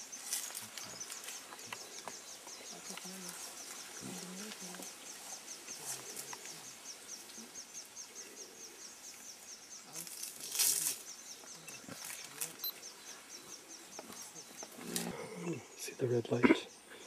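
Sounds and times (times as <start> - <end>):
insect chirping: 0.0 - 17.0
faint low grunts: 14.8 - 16.7.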